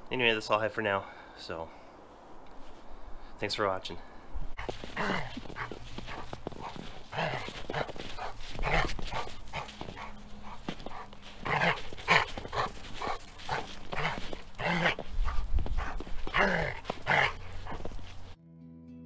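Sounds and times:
dog barking: 0:04.6 - 0:18.2.

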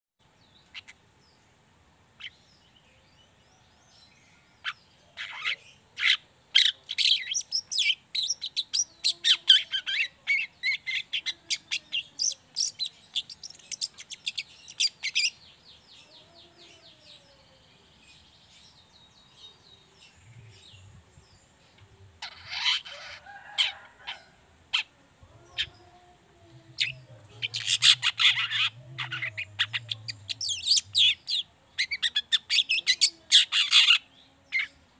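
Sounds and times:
bird chattering: 0:04.6 - 0:15.4, 0:22.2 - 0:23.8, 0:26.7 - 0:34.7.

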